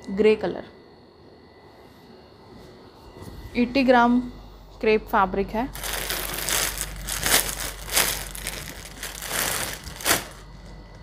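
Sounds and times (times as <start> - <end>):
clothes rustling and crinkling: 5.7 - 11.0.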